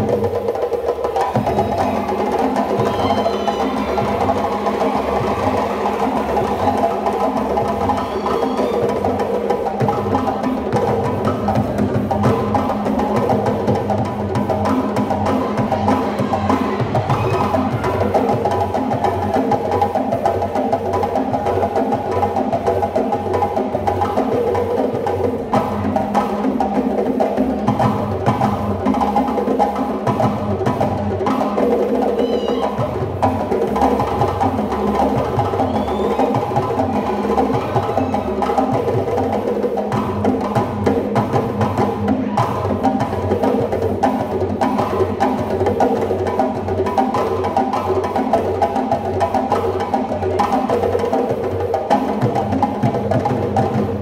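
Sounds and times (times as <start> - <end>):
percussion-led music: 0.0 - 54.0.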